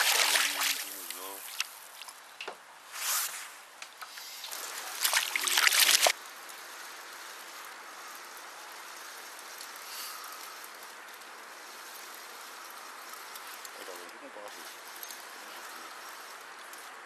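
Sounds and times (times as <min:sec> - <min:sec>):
fish thrashing and splashing: 0:00.0 - 0:02.1, 0:04.4 - 0:06.2
steady hiss of water: 0:00.0 - 0:16.8.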